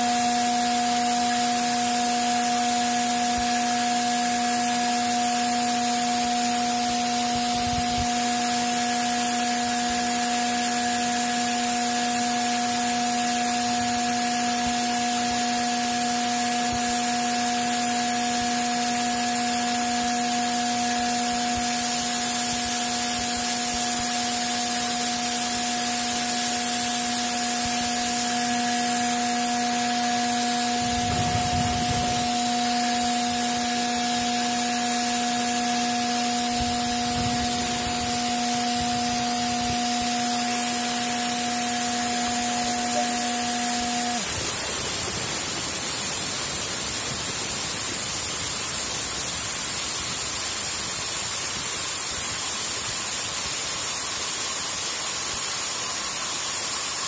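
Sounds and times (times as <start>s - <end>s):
compressor hum: 0.0s - 49.9s
air compressor hiss: 0.0s - 57.0s.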